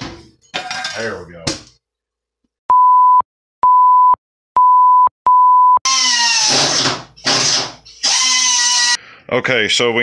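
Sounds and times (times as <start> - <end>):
short bleep tones: 2.7 - 5.8
power tool cutting sheet metal: 5.9 - 9.0.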